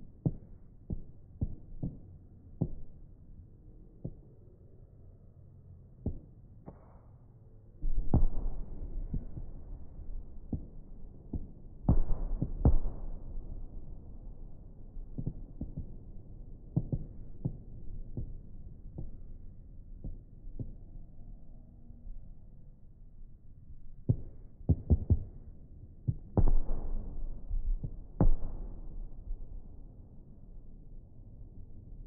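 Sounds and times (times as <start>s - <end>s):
fireworks deep booms: 7.8s - 19.2s, 26.1s - 29.7s.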